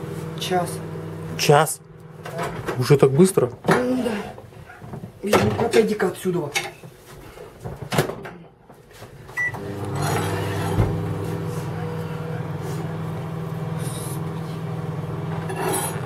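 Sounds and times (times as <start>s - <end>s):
microwave humming: 0.0s - 6.1s, 9.1s - 16.0s
microwave beep: 9.4s - 9.9s.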